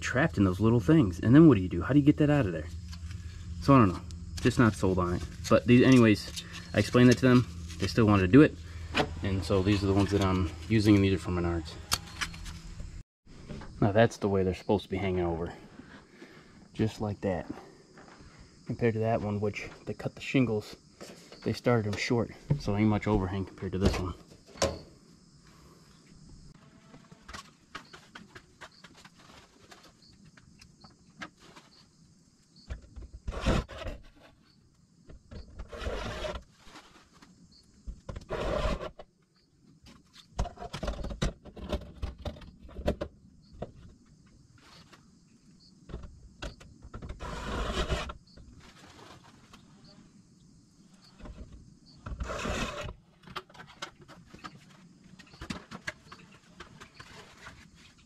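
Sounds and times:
scraping and rustling on roof: 0:02.5 - 0:12.8, 0:26.6 - 0:32.0, 0:32.6 - 0:39.1, 0:39.8 - 0:45.1, 0:45.9 - 0:50.1, 0:50.9 - 0:58.0.

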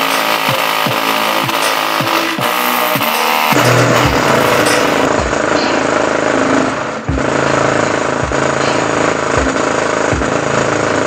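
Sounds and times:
distorted bass-boosted electronic music: 0:00.0 - 0:11.0
deep bass hits: 0:03.6 - 0:05.6, 0:07.1 - 0:10.4.

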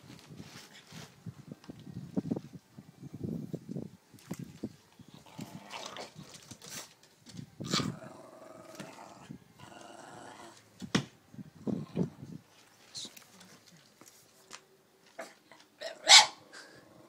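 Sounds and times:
dog growling: 0:07.7 - 0:10.6.

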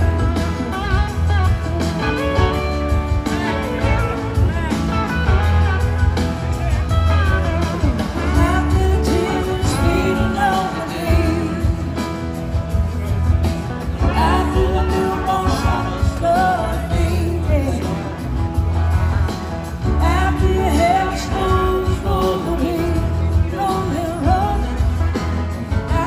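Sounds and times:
bass: 0:00.0 - 0:26.0
electric guitar: 0:00.0 - 0:26.0
keyboard: 0:00.0 - 0:26.0
woman singing: 0:08.3 - 0:12.0, 0:14.0 - 0:18.1, 0:20.0 - 0:25.1, 0:25.7 - 0:26.0.

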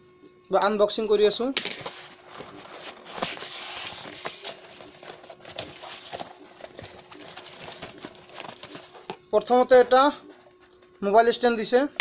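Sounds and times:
cardboard scraping: 0:01.8 - 0:09.5.

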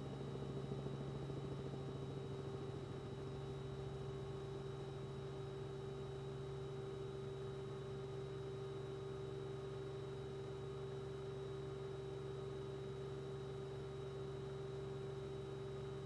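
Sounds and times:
faint high whine: 0:00.0 - 0:16.0.

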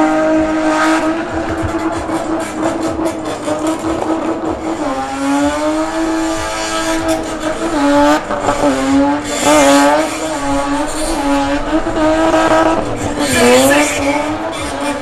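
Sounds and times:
car engine at high revs: 0:00.0 - 0:15.0
tyres screeching on tarmac: 0:06.1 - 0:15.0.

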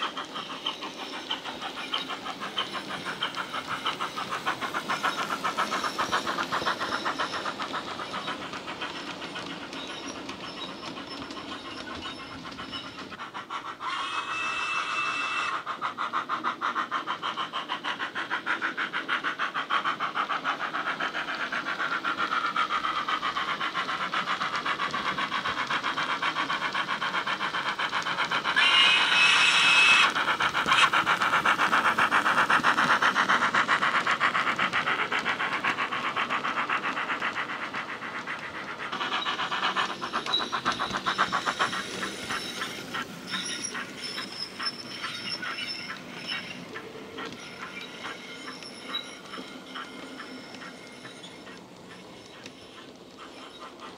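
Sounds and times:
model steam exhaust chuffs: 0:00.0 - 0:53.9.

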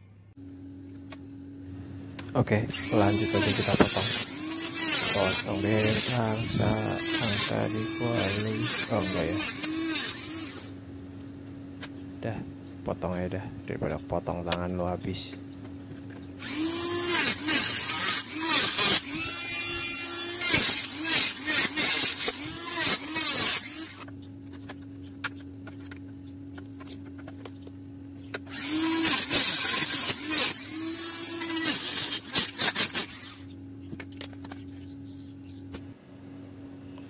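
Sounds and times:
power tool humming: 0:02.2 - 0:10.8, 0:15.9 - 0:25.9, 0:28.3 - 0:34.5
power tool cutting plastic: 0:02.7 - 0:10.8, 0:16.4 - 0:24.2, 0:28.3 - 0:33.5.

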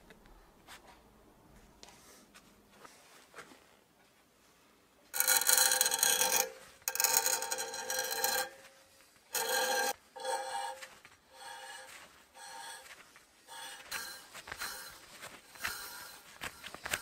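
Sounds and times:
thread tap scraping in metal: 0:05.2 - 0:08.7.

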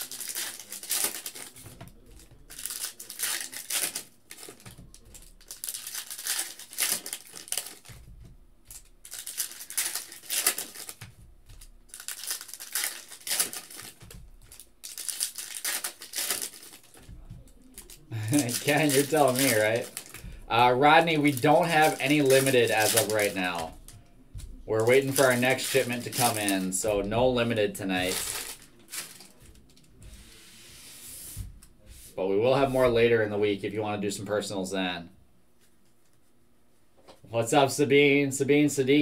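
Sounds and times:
foil wrappers crinkling and tearing: 0:00.0 - 0:24.0, 0:24.7 - 0:30.0.

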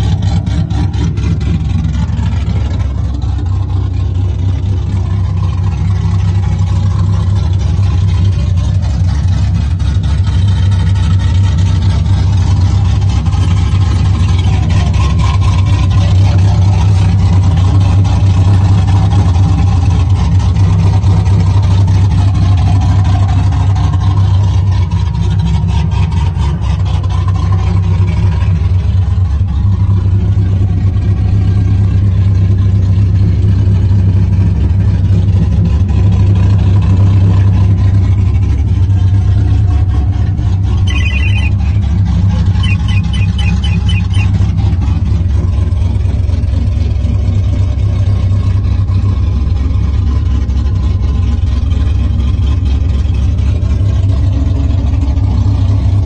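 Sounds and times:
car engine idling: 0:00.0 - 0:56.0
high electronic chime beeps: 0:40.9 - 0:41.6, 0:42.6 - 0:44.3.

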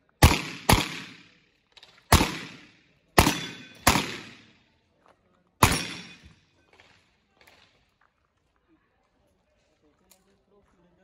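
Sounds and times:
revolver gunshots: 0:00.2 - 0:01.4, 0:02.1 - 0:04.6, 0:05.6 - 0:06.3.

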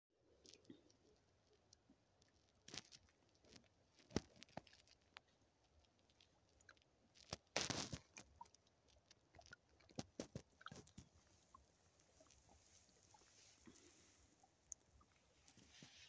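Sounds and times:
stream trickling: 0:08.0 - 0:16.0.

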